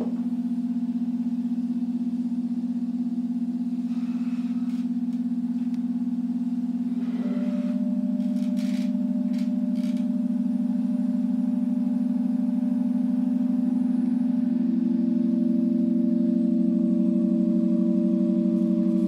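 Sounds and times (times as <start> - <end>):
organ pipes droning: 6.2 - 10.5.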